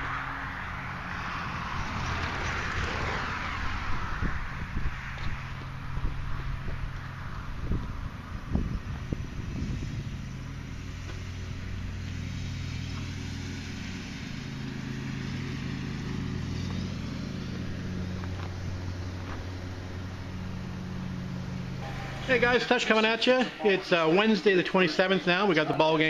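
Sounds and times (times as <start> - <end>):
vehicle engine idling: 0.0 - 26.0.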